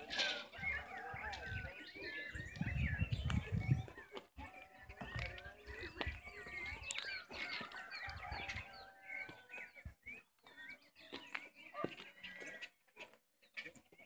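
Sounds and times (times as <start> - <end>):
chickens clucking: 0.0 - 14.0.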